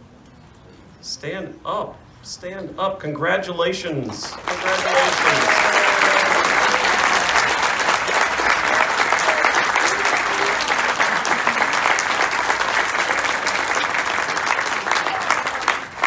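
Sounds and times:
crowd applauding: 4.2 - 16.0
voices: 4.5 - 12.3.

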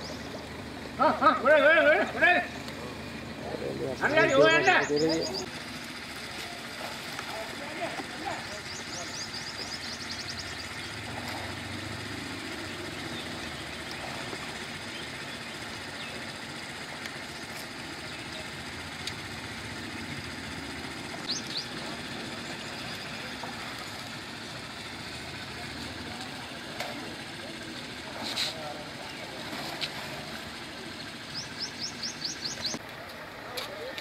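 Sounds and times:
low engine-like hum: 0.0 - 34.0
bird chirping: 3.8 - 5.5, 8.3 - 11.2, 21.2 - 21.8, 31.0 - 32.8.

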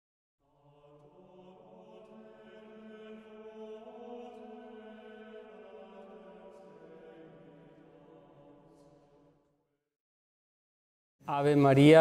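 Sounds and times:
slow chant-like sacred music: 0.4 - 9.6.

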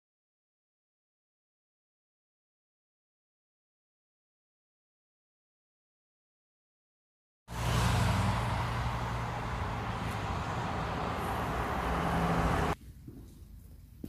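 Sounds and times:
cars driving past: 7.5 - 12.8
quiet outdoor ambience: 7.5 - 14.0.

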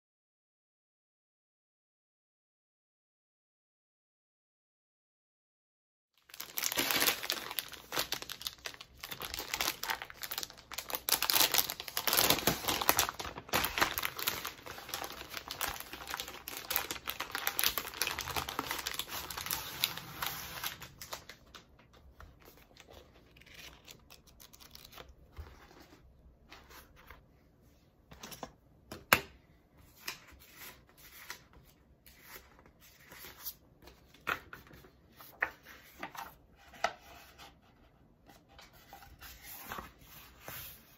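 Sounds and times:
plastic sleeve crinkling: 6.2 - 25.2
paper sheets rustling: 6.4 - 27.2.

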